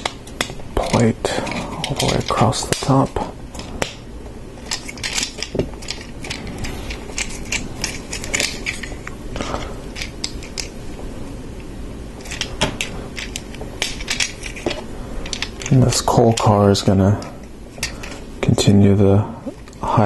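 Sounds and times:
plastic pieces clicking together: 0.0s - 4.0s, 4.6s - 10.7s, 12.2s - 16.5s.

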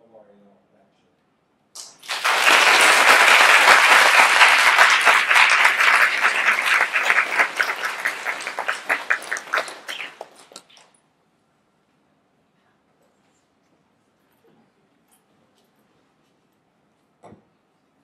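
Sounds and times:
audience applauding: 1.8s - 10.8s.

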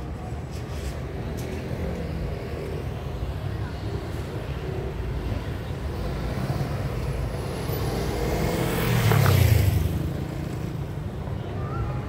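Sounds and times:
car passing by: 6.0s - 10.6s.

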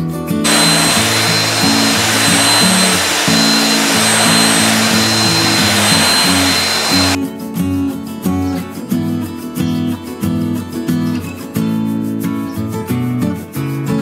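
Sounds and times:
belt sander on wood: 0.5s - 7.2s.

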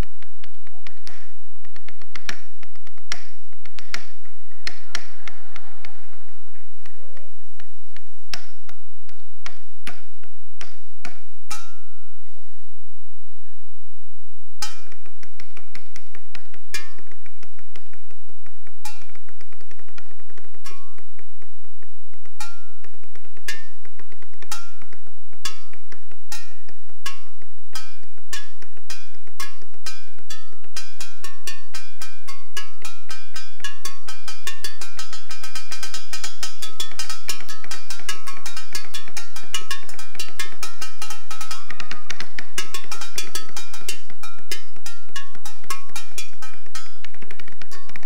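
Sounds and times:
blades striking metal bowls: 25.5s - 48.0s.

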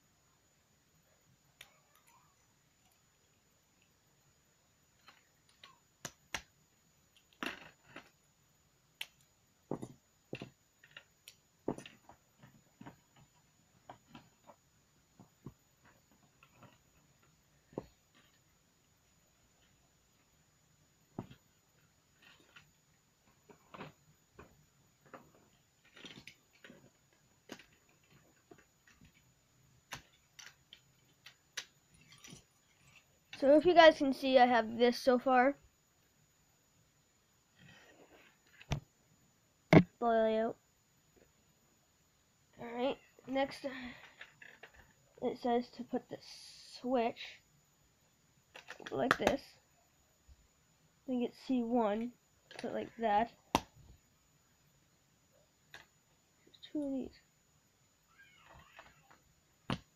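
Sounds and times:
faint plastic clicks and taps: 1.6s - 3.1s, 48.5s - 49.5s
plastic pieces clicking and snapping: 29.9s - 32.4s.

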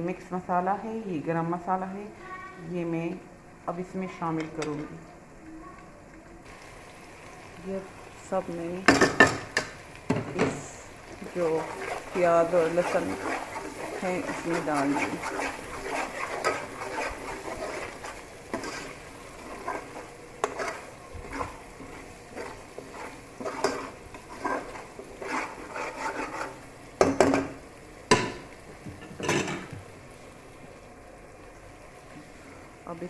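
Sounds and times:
low sizzle of frying: 0.0s - 33.0s
metal spoon scraping pot: 11.4s - 26.6s.

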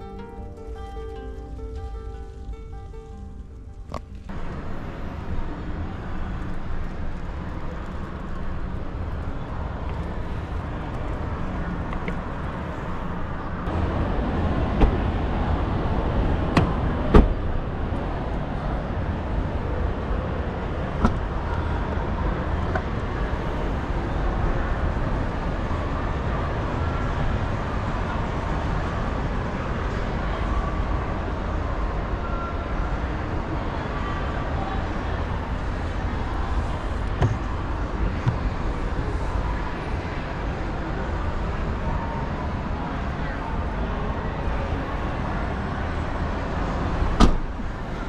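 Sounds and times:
busy hall background noise: 0.0s - 48.0s
sharp knocks: 37.2s - 37.5s.

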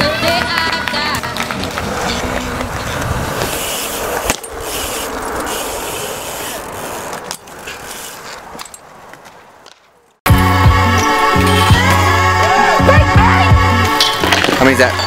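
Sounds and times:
bike tyres rolling on concrete: 0.0s - 10.2s, 11.4s - 15.0s
bike clacking on ground: 6.4s - 10.2s, 14.0s - 15.0s
loud music: 10.3s - 15.0s.

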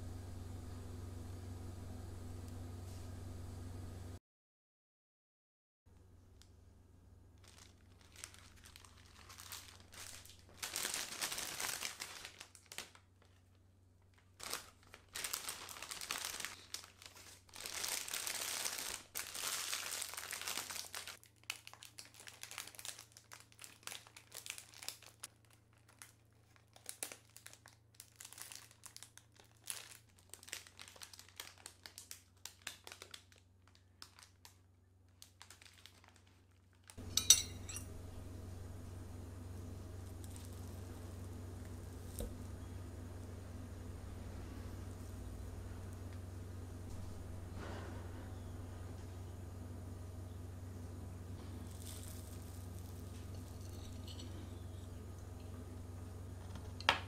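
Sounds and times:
plastic bag crinkling: 7.4s - 38.1s, 39.0s - 46.6s, 51.2s - 57.0s.

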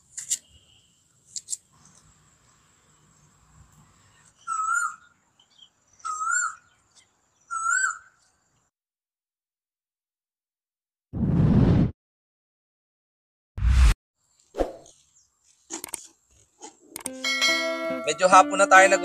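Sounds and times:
bird whistled call: 4.4s - 5.0s, 6.0s - 6.6s, 7.5s - 8.1s.

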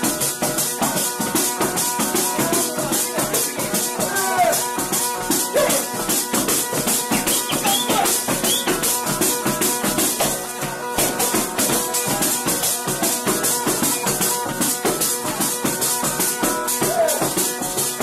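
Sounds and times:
frame drum jingling beat: 0.0s - 18.0s
bagpipe playing over drones: 6.8s - 9.6s.

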